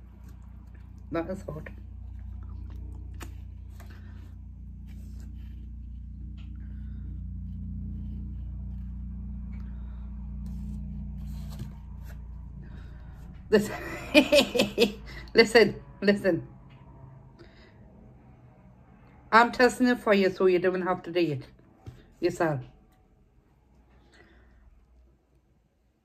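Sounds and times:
steady low hum: 0.0s - 26.0s
woman's voice: 1.1s - 1.8s, 13.5s - 16.5s, 19.3s - 21.5s, 22.2s - 22.7s.

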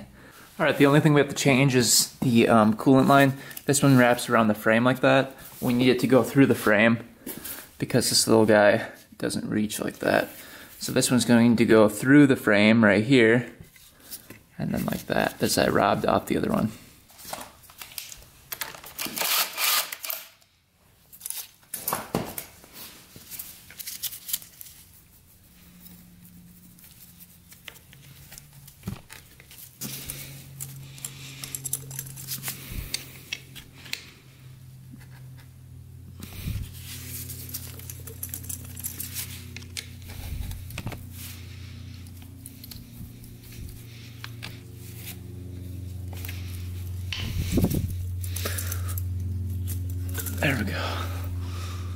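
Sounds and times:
screwdriver turning hose clamp: 19.0s - 20.3s
hands fitting rubber hose: 26.7s - 34.1s, 36.2s - 41.4s, 42.0s - 45.2s, 46.1s - 50.7s.

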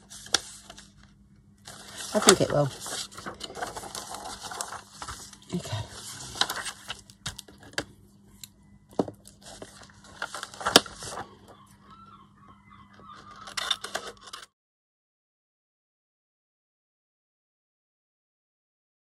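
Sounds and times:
paper rustling and crinkling: 0.0s - 7.8s, 9.2s - 11.4s.

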